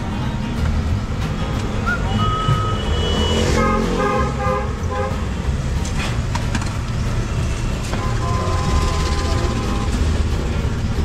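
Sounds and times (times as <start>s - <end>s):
low traffic rumble: 0.0s - 11.0s
vehicle horn short toots: 2.0s - 5.2s, 8.0s - 10.0s.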